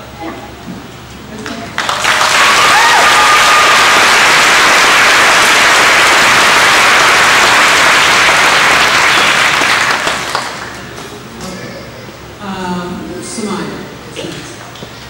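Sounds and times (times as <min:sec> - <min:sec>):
audience applauding: 0:01.8 - 0:11.0.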